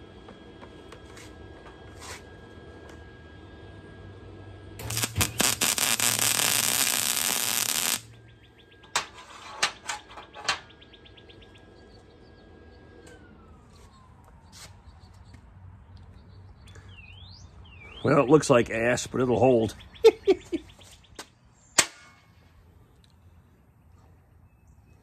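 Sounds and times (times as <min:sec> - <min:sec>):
welder crackling sizzle: 0:04.8 - 0:08.2.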